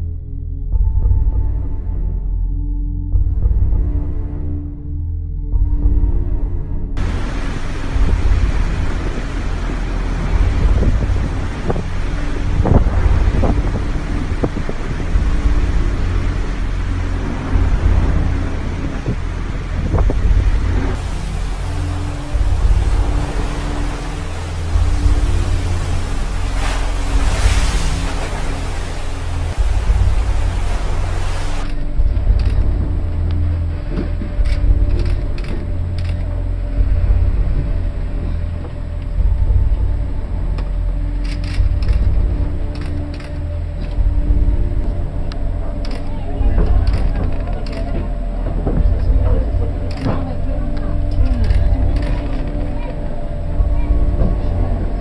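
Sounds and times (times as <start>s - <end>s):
steady hums: 0.7s - 55.0s
breaking waves: 7.0s - 32.1s
wind buffeting microphone: 7.0s - 40.4s
ship creaks and knocks: 7.0s - 40.8s, 41.4s - 55.0s.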